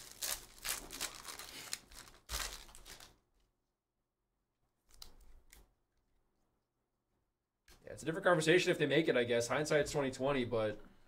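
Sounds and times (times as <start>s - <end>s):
cards rustling: 0.0s - 3.2s
foil wrapper crinkling and tearing: 0.0s - 3.2s.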